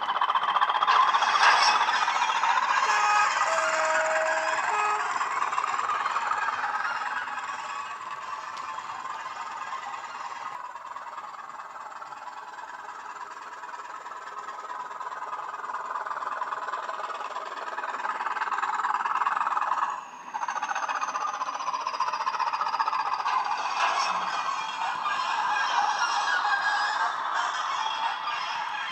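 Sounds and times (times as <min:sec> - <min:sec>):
model wagons running on track: 0:00.0 - 0:28.9
diesel engine sound from small speaker: 0:00.8 - 0:07.4.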